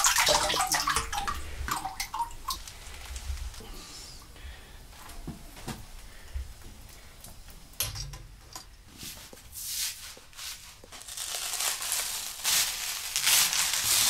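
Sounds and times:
soft rustling of paper and felt: 2.6 - 4.2, 8.9 - 14.0.

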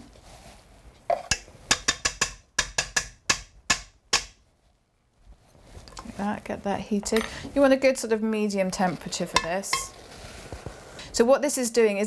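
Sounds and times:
utensil tapping frying pan rim: 1.1 - 4.4, 9.2 - 10.0.

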